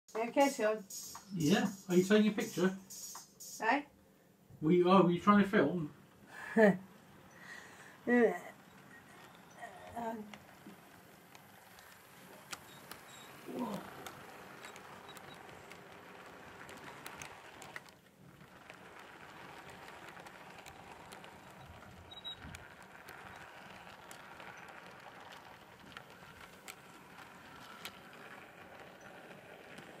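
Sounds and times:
model train rolling: 0:00.1 - 0:03.7, 0:04.6 - 0:30.0
light clicks of train: 0:06.6 - 0:30.0.

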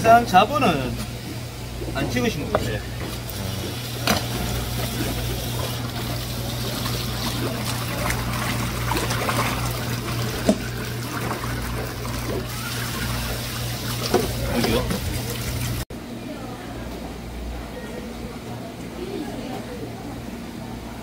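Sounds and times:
fish being washed by hand: 0:00.6 - 0:15.8
tap water splashing into basin: 0:04.0 - 0:15.8.

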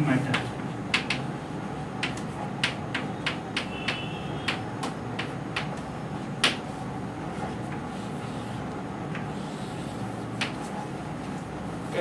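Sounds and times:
chalk ticking on chalkboard: 0:00.3 - 0:01.3, 0:02.0 - 0:06.7.

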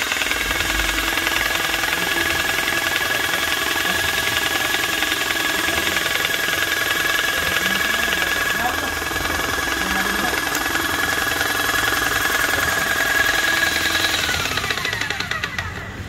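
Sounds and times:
paint sprayer motor whine: 0:00.0 - 0:16.0
piston pump knocking: 0:00.0 - 0:16.0.

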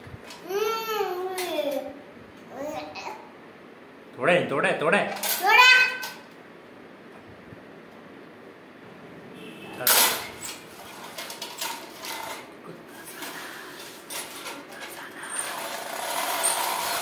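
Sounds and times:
toy tractor hitting tiled floor: 0:09.8 - 0:12.5, 0:15.4 - 0:17.0
toy wheels clicking and rattling: 0:09.9 - 0:17.0.

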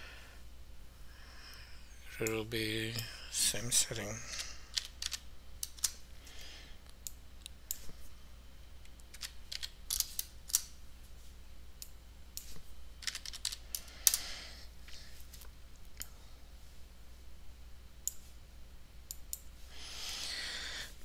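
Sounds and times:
faint low hum: 0:00.0 - 0:21.0
keyboard and mouse clicks: 0:04.7 - 0:06.0, 0:11.8 - 0:14.2.

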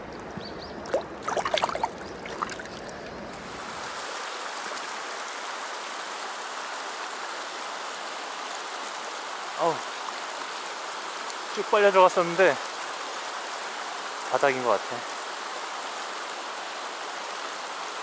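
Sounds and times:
river running over stones: 0:00.0 - 0:08.4
fish splashing in water: 0:00.1 - 0:03.3.

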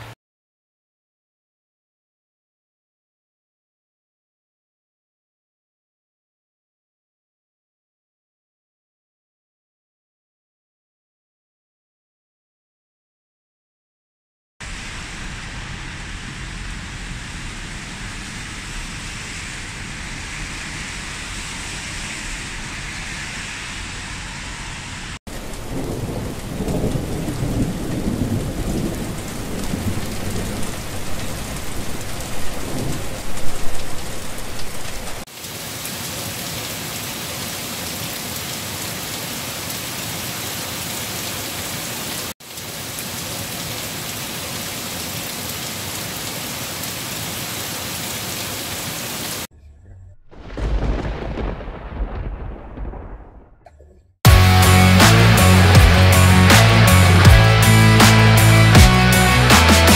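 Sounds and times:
rain on trees: 0:14.6 - 0:23.0, 0:23.9 - 0:49.5, 0:50.3 - 0:53.5, 0:54.4 - 0:59.9
thunder rumbling: 0:14.6 - 0:35.2, 0:49.5 - 0:57.8
rain on a wet street: 0:14.6 - 0:49.5, 0:50.4 - 0:53.2.

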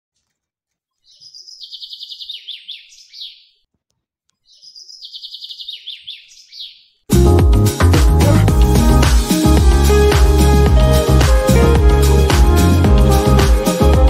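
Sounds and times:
small songbird trilling: 0:01.0 - 0:03.6, 0:04.4 - 0:07.0.

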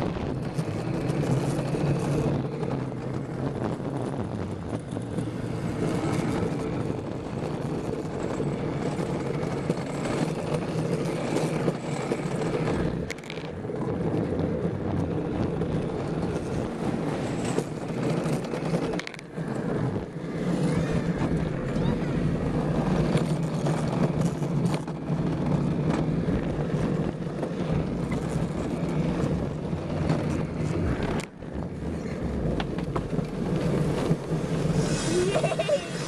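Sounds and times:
wheels rolling on concrete: 0:00.0 - 0:36.0.

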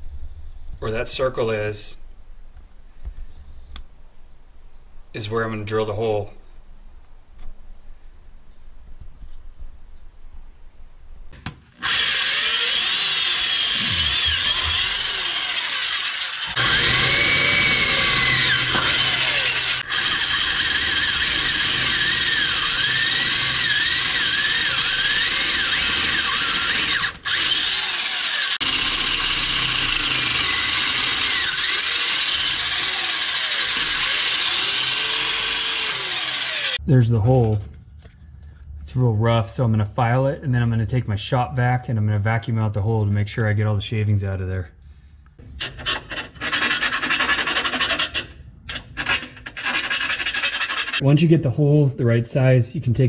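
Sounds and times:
power drill grinding through metal: 0:11.7 - 0:36.8, 0:45.4 - 0:51.0.

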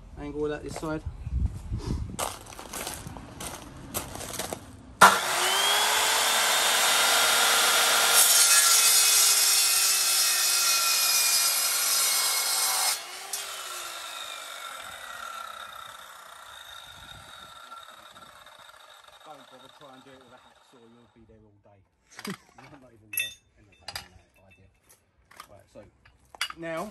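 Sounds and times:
chop saw whining: 0:05.0 - 0:21.1
saw cutting metal tube: 0:05.0 - 0:21.1.

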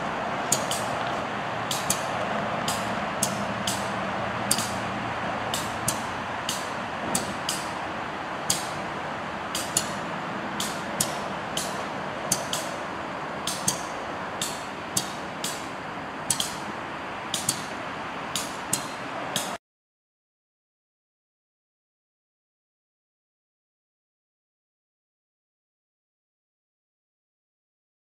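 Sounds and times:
freight cars rolling on rails: 0:00.0 - 0:19.6
wheel clicks on rail joints: 0:00.0 - 0:19.6.

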